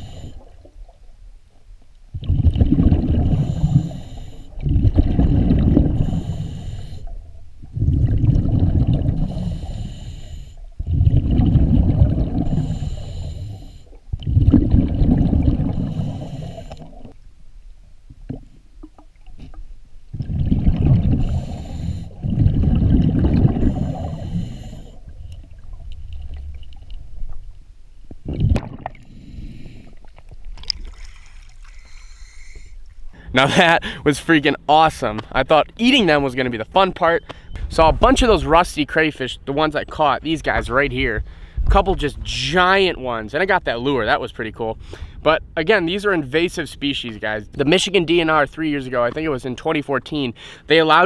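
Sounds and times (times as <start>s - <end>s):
regulator inhale hissing: 0.0s - 0.7s, 3.3s - 4.6s, 5.9s - 7.2s, 9.2s - 10.7s, 12.4s - 14.0s, 15.7s - 17.2s, 21.2s - 22.2s, 23.5s - 25.2s, 29.0s - 30.1s, 31.1s - 34.0s
diver exhaling bubbles: 2.1s - 10.0s, 10.8s - 17.2s, 20.1s - 26.6s, 28.2s - 34.0s.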